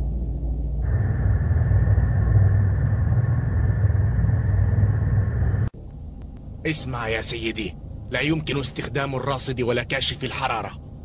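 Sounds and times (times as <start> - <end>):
deep engine rumble: 0.0 - 8.6.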